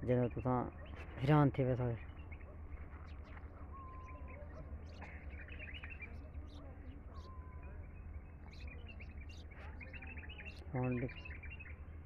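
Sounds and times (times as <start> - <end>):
small birds chirping: 0.0 - 12.0
whistled calls: 2.2 - 6.2, 7.1 - 8.0.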